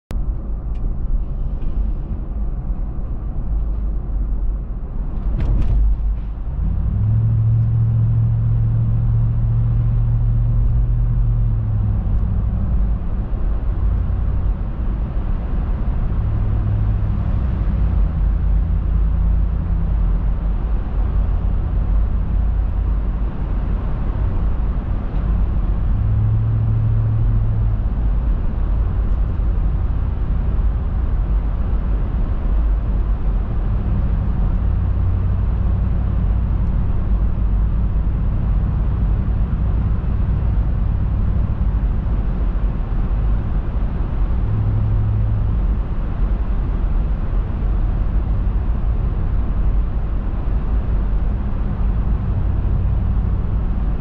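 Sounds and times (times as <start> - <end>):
car road and engine rumble: 0.1 - 54.0
deep drone: 0.1 - 54.0.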